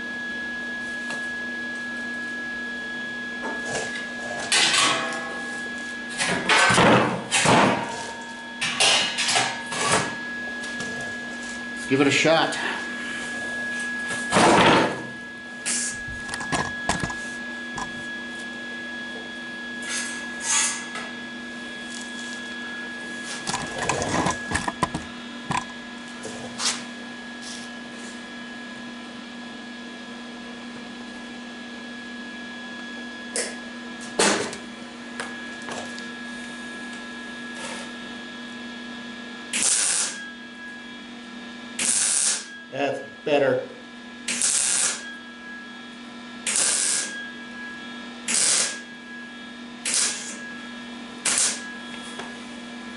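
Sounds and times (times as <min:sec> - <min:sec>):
welder humming: 0:00.0 - 0:28.2, 0:33.1 - 0:52.9
arc weld burst: 0:39.5 - 0:40.2, 0:41.8 - 0:42.5, 0:44.2 - 0:45.0, 0:46.4 - 0:47.2, 0:48.3 - 0:48.8, 0:49.8 - 0:50.4, 0:51.2 - 0:51.6.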